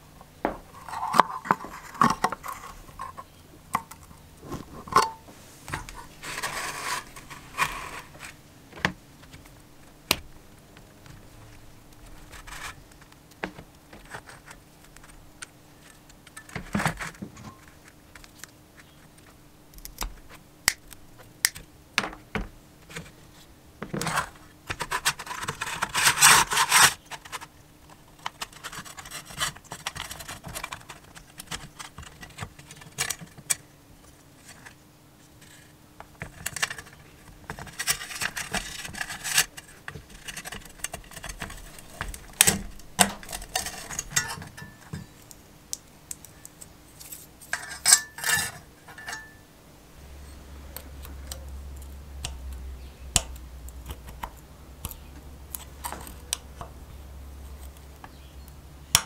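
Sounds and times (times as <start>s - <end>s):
plastic scraping and rubbing: 0.4s - 9.6s, 10.2s - 19.4s, 22.8s - 33.6s, 34.2s - 45.2s.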